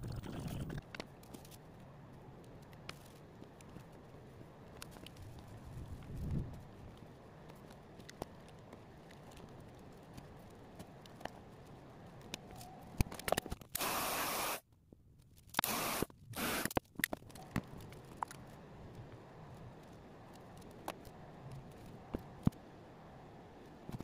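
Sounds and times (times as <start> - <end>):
hissing spray bursts: 13.8 - 14.6, 15.6 - 16.7.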